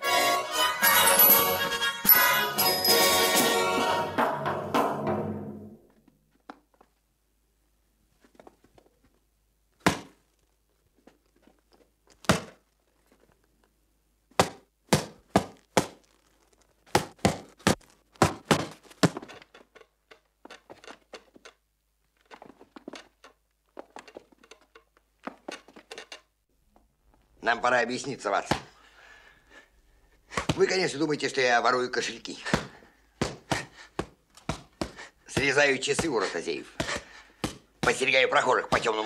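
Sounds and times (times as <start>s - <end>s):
boxing gloves punching: 9.8s - 10.2s, 12.2s - 12.6s, 14.4s - 16.0s, 16.9s - 19.3s, 30.3s - 30.6s, 32.4s - 36.2s, 36.8s - 38.0s.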